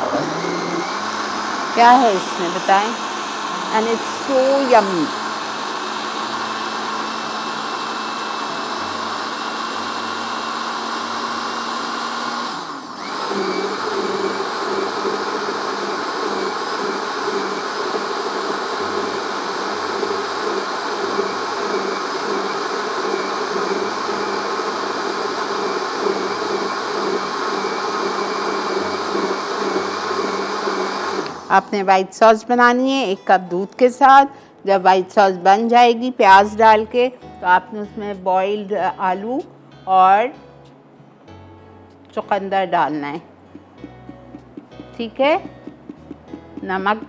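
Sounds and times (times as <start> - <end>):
blender motor running: 0.0 - 31.8.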